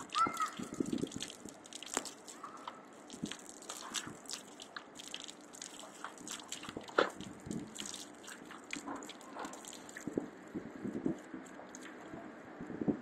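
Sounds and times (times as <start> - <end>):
dog lapping water: 0.0 - 10.2
water splashing on metal grate: 0.0 - 10.3.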